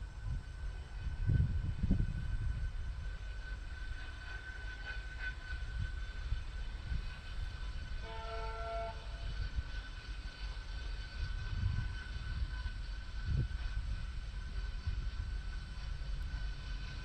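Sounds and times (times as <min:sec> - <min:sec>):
locomotive horn: 0:08.0 - 0:09.4.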